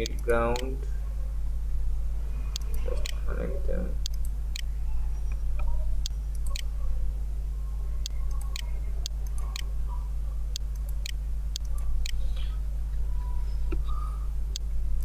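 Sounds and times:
steady low hum: 0.0s - 15.0s
computer mouse clicking: 2.5s - 3.2s, 4.0s - 6.8s, 8.0s - 9.7s, 10.5s - 12.5s.

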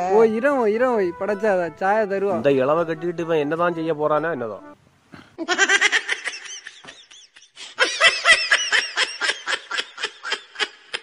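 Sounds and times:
high-pitched giggling laughter: 5.4s - 11.0s.

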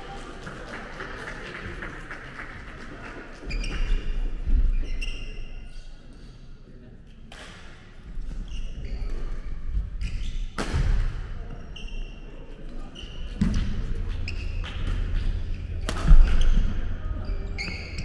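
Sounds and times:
sneaker squeaks: 3.5s - 6.4s, 8.3s - 10.6s, 11.5s - 18.0s.

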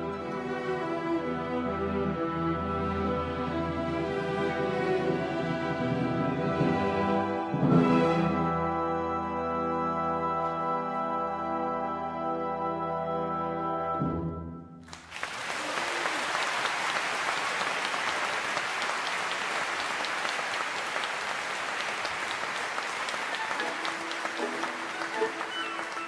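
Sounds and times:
orchestra playing: 0.0s - 15.0s, 18.2s - 26.0s
audience applauding: 14.8s - 26.0s.

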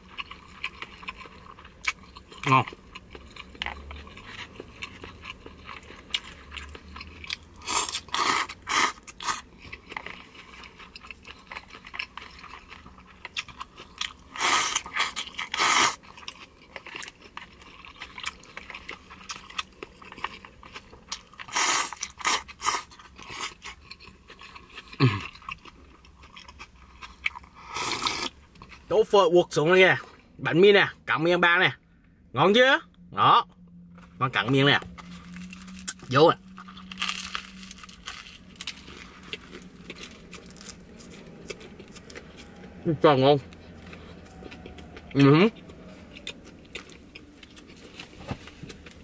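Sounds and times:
soft chewing and crunching: 0.0s - 32.2s, 32.9s - 49.0s
noodles slurping: 7.6s - 9.4s, 14.2s - 16.0s, 21.4s - 23.8s.

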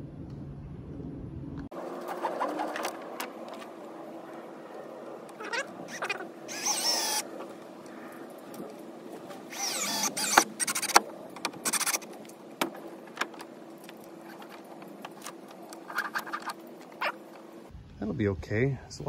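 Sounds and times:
cordless drill driving screws: 5.9s - 7.2s, 9.5s - 11.0s.

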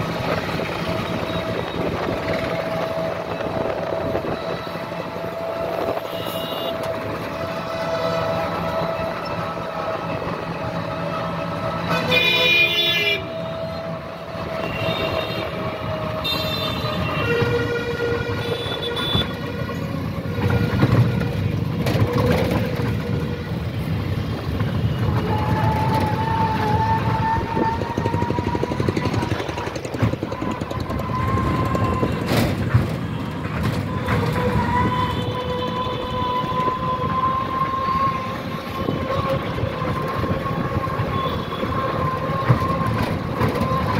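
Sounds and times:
busy street traffic: 0.0s - 43.9s
vehicle horns honking: 4.0s - 9.4s, 11.8s - 13.6s, 14.5s - 19.7s, 40.9s - 42.8s.

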